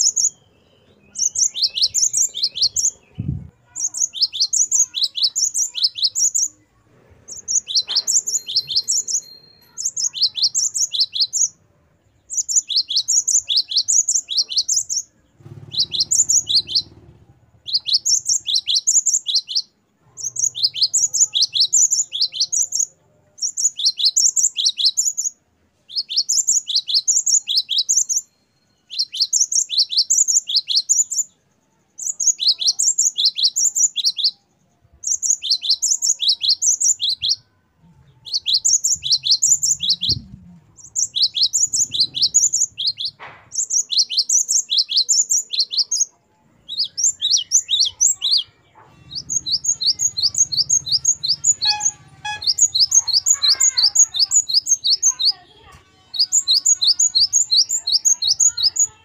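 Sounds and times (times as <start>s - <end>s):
bird singing whistled notes: 0.0s - 6.6s, 7.3s - 11.6s, 12.2s - 31.4s, 32.0s - 37.5s, 38.2s - 55.4s, 56.0s - 59.0s.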